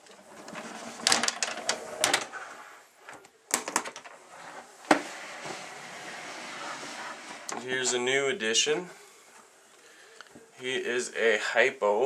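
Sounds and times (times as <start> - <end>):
plastic tubs scraping and clattering: 0.0 - 8.0.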